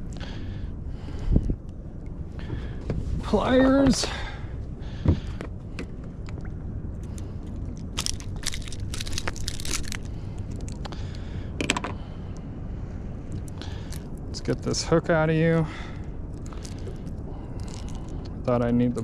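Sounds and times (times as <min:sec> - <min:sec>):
steady low rumble: 0:00.0 - 0:19.0
clicks crackles and rustling: 0:05.8 - 0:11.0.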